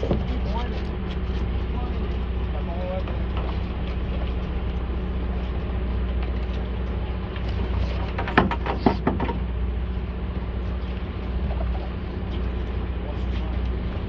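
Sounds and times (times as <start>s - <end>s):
boat engine humming: 0.0s - 14.0s
sea noise: 0.0s - 14.0s
wind: 0.0s - 14.0s
sharp clicks and knocks: 7.4s - 9.5s.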